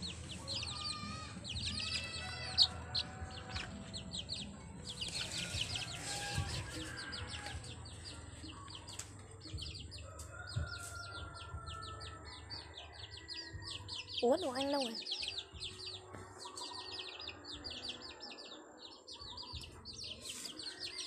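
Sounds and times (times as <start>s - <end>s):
baby chicks peeping: 0.0s - 21.0s.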